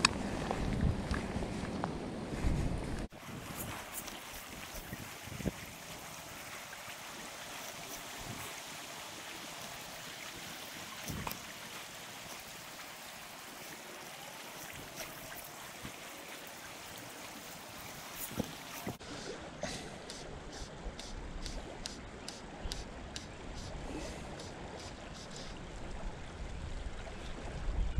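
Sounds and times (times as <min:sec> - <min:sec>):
creek water rushing over riffles: 0:03.1 - 0:27.6.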